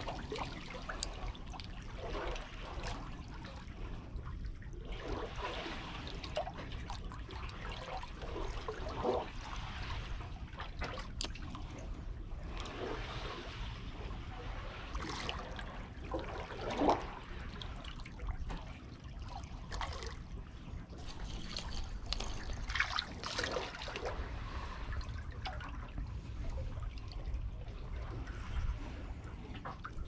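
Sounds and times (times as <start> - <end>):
seawater lapping and trickling: 0.0 - 30.0
water gurgles and splashes: 0.0 - 30.0.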